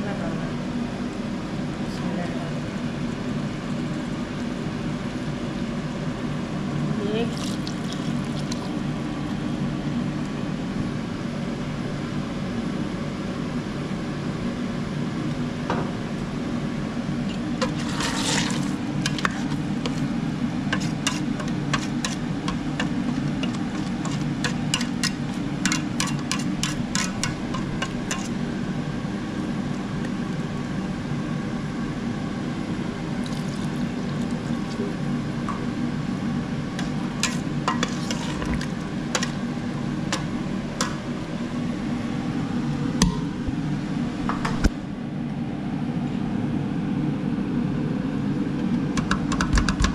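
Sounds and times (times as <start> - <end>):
water poured into pot: 7.3 - 8.8, 33.2 - 34.6
metal ladle scraping pot: 17.6 - 20.1, 20.7 - 28.4, 36.8 - 39.4.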